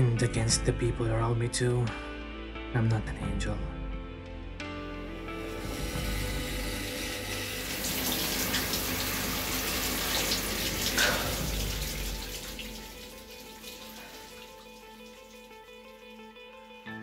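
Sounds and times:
faint background music: 0.0s - 17.0s
shower water running: 5.4s - 16.6s.

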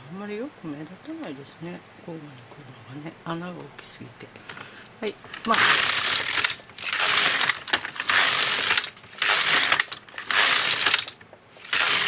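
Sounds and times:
knitting machine carriage clattering: 5.3s - 12.0s.

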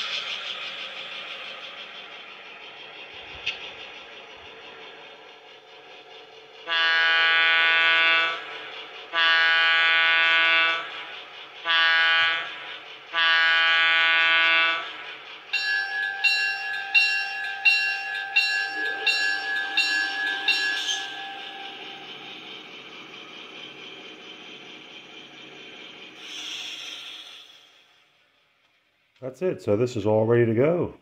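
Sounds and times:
diesel air horn blasts: 6.7s - 8.4s, 9.1s - 10.8s, 11.6s - 12.5s, 13.1s - 14.8s
locomotive bell ringing: 11.7s - 26.3s.

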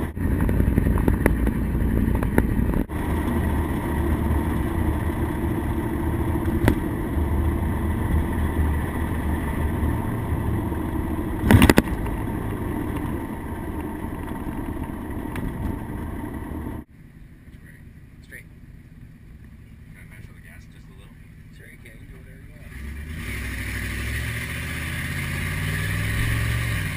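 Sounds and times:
truck engine and road rumble: 0.0s - 26.9s
loud clatter: 11.4s - 16.8s.

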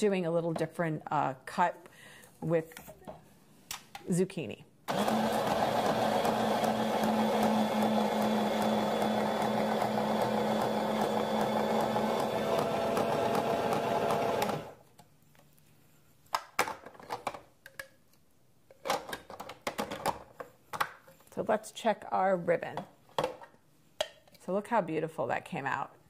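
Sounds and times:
electric slicer motor running: 4.9s - 14.8s.

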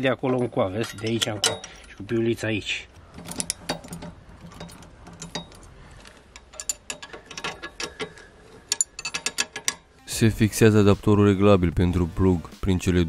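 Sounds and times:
wrench clicking on metal parts: 0.2s - 2.2s, 3.0s - 10.0s.

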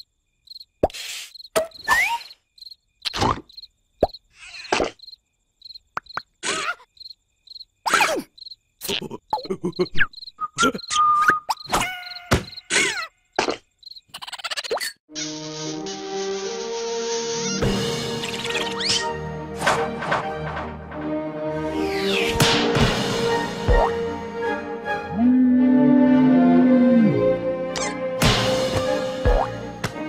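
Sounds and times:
cricket chirping: 0.0s - 14.9s.

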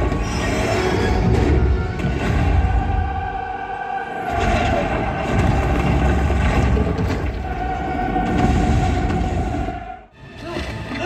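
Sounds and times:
low rumble of destruction: 4.3s - 9.4s.

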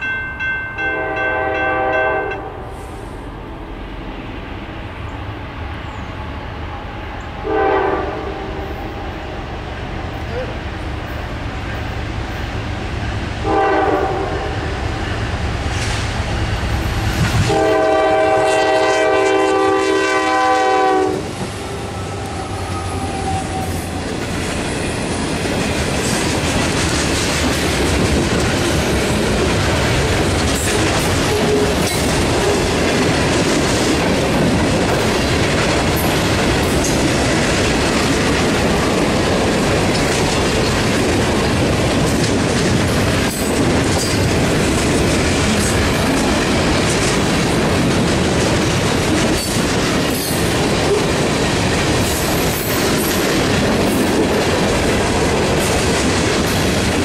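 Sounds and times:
locomotive horn blasts: 0.8s - 2.8s, 7.4s - 8.9s, 13.4s - 14.7s, 17.5s - 21.3s
train wheels clacking on rails: 11.0s - 57.0s.

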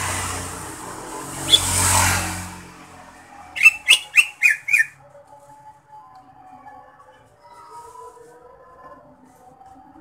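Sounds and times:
vehicle passing: 0.0s - 5.0s
bird giving sharp calls: 1.4s - 1.9s, 3.6s - 4.9s.

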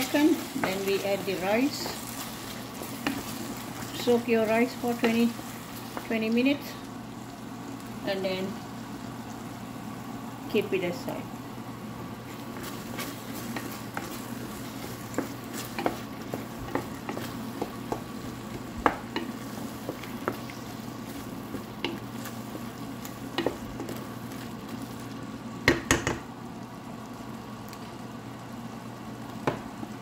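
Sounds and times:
mixture sizzling in a pot: 0.0s - 30.0s
spoon knocking on a pot: 25.6s - 26.2s.

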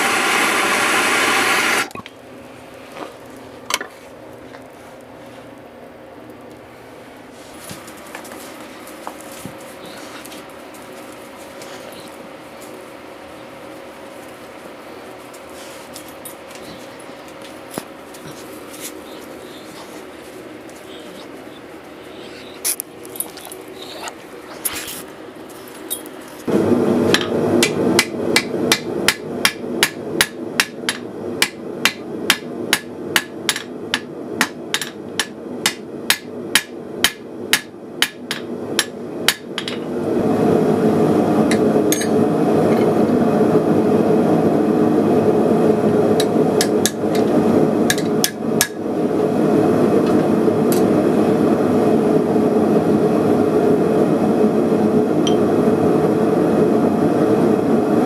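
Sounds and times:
gas forge burner roar: 0.0s - 58.0s
hammer striking steel on anvil: 27.2s - 39.8s, 41.9s - 42.1s.

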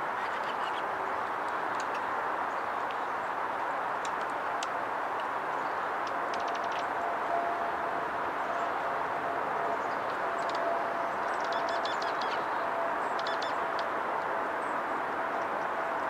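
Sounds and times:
chickadees calling: 11.3s - 13.9s.

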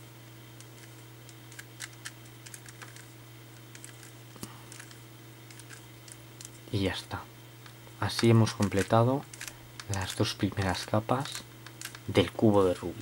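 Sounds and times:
faint steady hum: 0.0s - 13.0s
plastic puzzle cube clicking: 8.1s - 10.7s, 11.6s - 12.0s.

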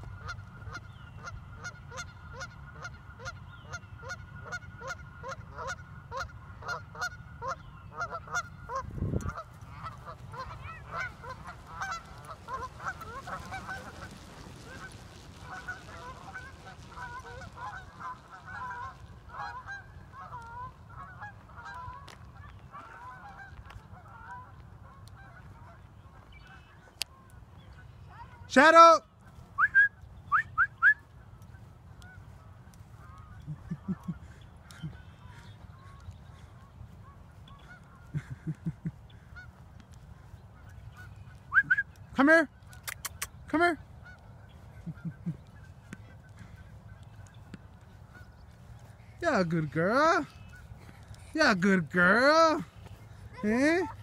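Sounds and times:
geese honking: 0.0s - 29.7s, 30.4s - 54.0s.

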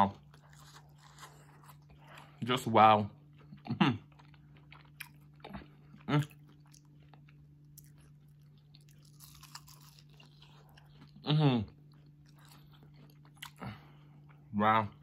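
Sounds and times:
chewing crispy fried chicken: 0.0s - 15.0s
person humming: 11.2s - 11.7s.

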